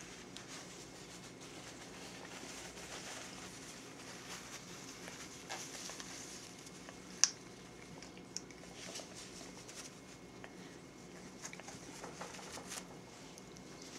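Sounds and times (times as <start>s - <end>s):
paper rustling: 0.0s - 7.0s, 11.3s - 13.9s
parrot tearing paper napkin: 0.0s - 7.3s.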